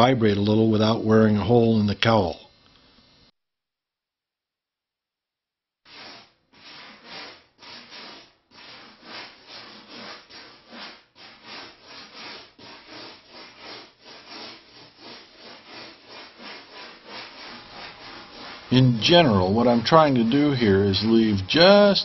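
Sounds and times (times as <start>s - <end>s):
tool scraping styrofoam: 5.8s - 22.0s.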